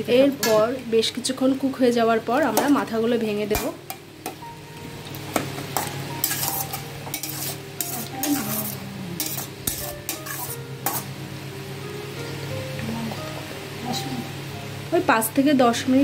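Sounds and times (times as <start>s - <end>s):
light sizzle: 0.0s - 16.0s
spatula scraping and knocking pan: 5.3s - 11.1s.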